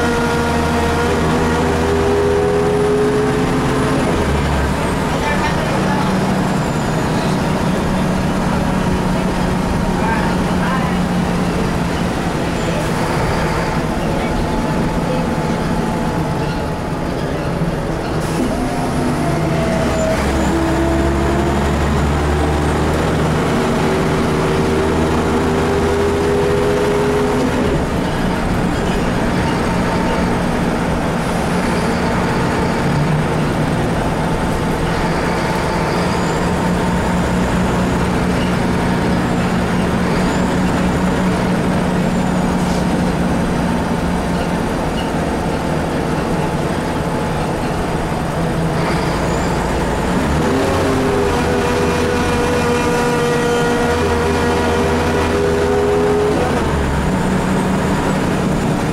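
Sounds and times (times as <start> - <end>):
bus diesel engine: 0.0 - 58.9.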